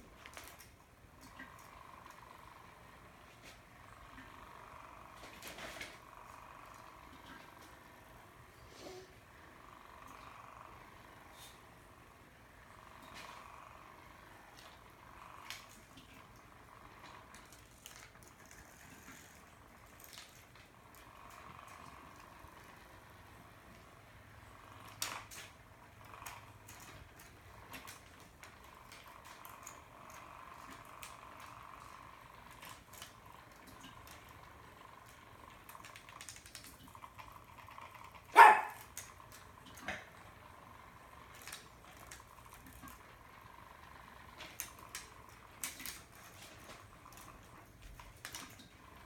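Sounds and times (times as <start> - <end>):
spinner toy whirring: 0.0 - 49.0
animal cry: 38.3 - 38.8.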